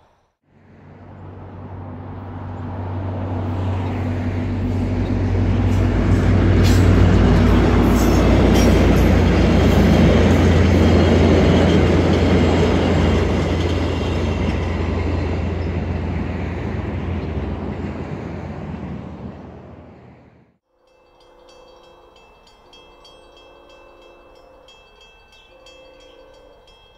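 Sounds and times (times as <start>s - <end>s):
diesel locomotive engine hum: 0.0s - 26.9s
train wheels rumbling on bridge: 1.8s - 20.2s.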